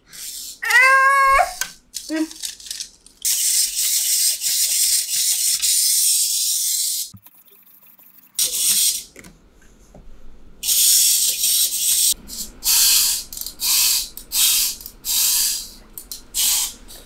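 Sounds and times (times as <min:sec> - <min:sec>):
bursts of hissing: 0:00.0 - 0:01.6, 0:10.6 - 0:17.0.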